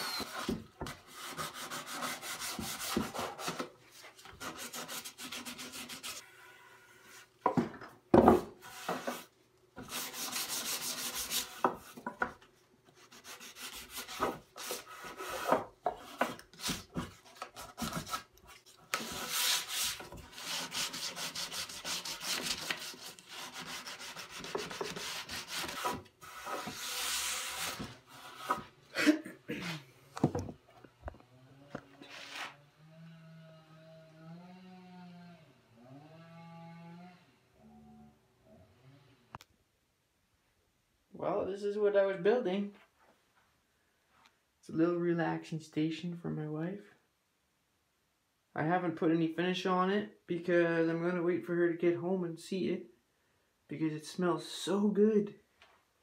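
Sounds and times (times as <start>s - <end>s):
hand rubbing wooden board: 13.0s - 28.7s.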